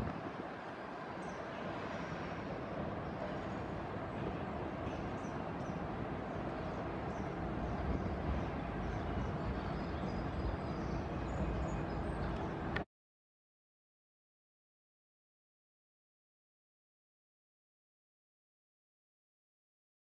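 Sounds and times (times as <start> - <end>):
road traffic rumble: 0.0 - 12.8.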